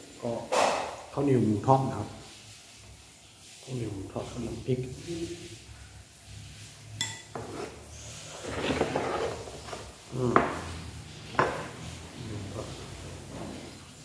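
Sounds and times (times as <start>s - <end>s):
metal spoon clinking on ceramic dishes: 7.0s - 7.4s
spoon and plate clatter: 7.0s - 7.6s.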